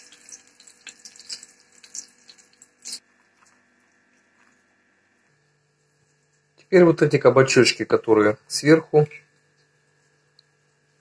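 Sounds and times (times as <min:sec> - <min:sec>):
food crackling in hot oil: 0:00.0 - 0:04.7.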